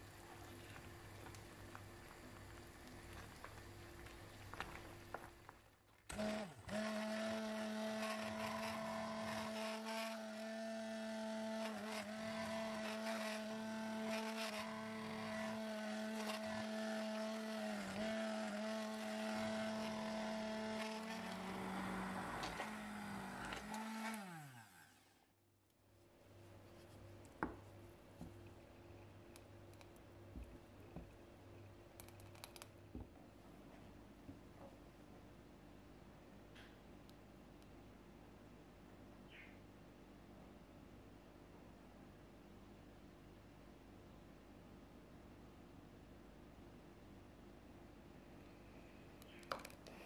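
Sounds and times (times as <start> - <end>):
stick blender motor whine: 6.1 - 25.3.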